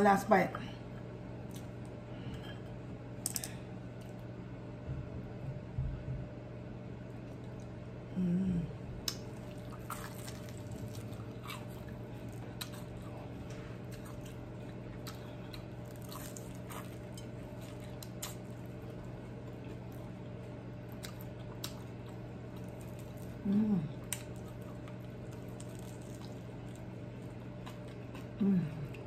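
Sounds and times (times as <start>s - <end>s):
steady low hum: 0.0s - 29.0s
person humming mm: 8.1s - 8.9s, 23.4s - 24.0s, 28.4s - 29.0s
close chewing and lip smacks: 9.0s - 29.0s.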